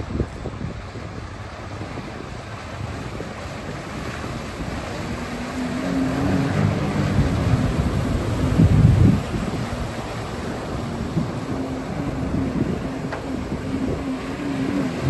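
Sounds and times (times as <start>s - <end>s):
jet ski engine: 0.0s - 15.0s
wind noise on microphone: 0.0s - 15.0s.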